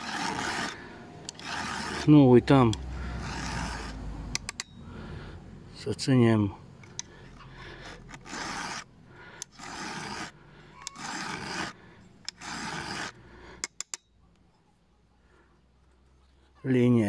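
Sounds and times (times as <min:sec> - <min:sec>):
file rasping on saw chain: 0:00.0 - 0:04.8, 0:06.8 - 0:14.0.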